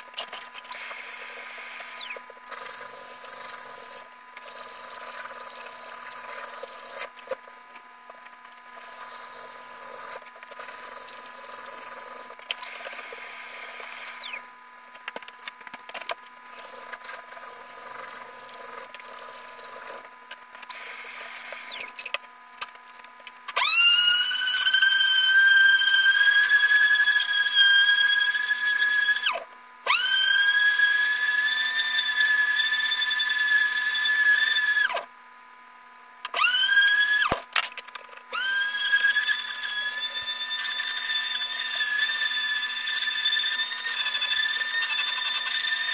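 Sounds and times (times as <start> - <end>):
shop vacuum running: 0.6 - 4.0, 8.7 - 14.6, 20.7 - 22.0
electric sander whine: 0.7 - 2.3, 11.8 - 14.5, 20.7 - 21.9
high whistle: 23.6 - 29.4, 38.6 - 45.9.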